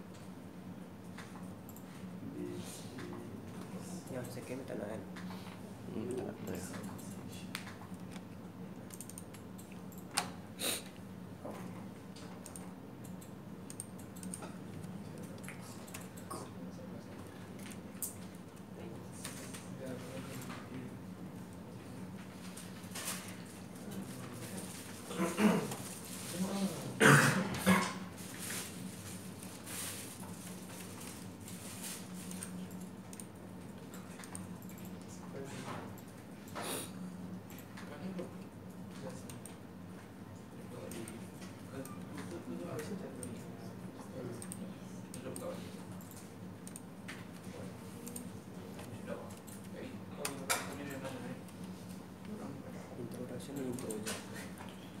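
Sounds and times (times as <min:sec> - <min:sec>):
low room hum: 0:00.0 - 0:55.0.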